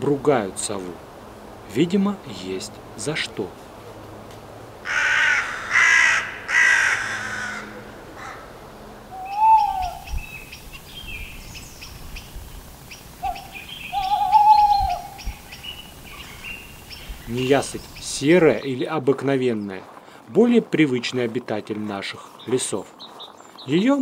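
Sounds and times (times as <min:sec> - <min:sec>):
crows cawing harshly: 0:04.8 - 0:10.1
owl hooting: 0:09.1 - 0:11.0, 0:12.9 - 0:17.2
small birds chirping: 0:09.1 - 0:24.0.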